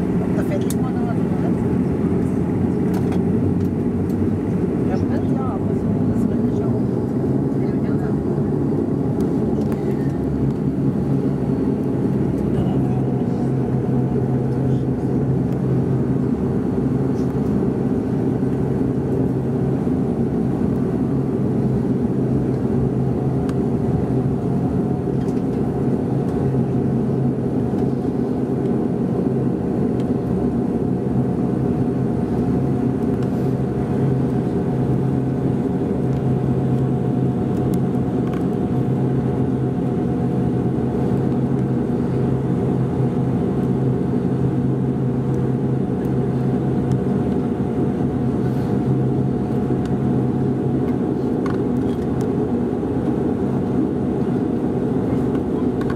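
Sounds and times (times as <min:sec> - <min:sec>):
turboprop engine drone in cabin: 0:00.0 - 0:55.9.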